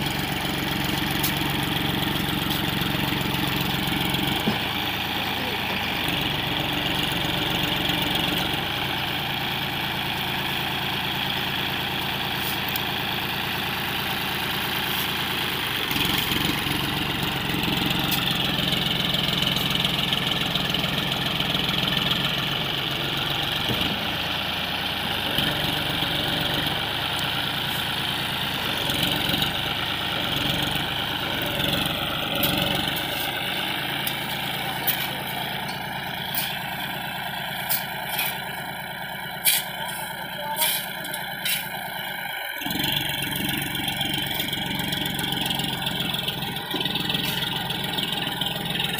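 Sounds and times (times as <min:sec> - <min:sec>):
tractor diesel engine working: 0:00.0 - 0:48.9.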